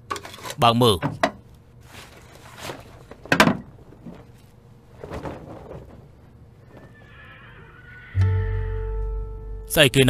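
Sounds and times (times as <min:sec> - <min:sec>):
handling rustles: 0:01.8 - 0:07.0.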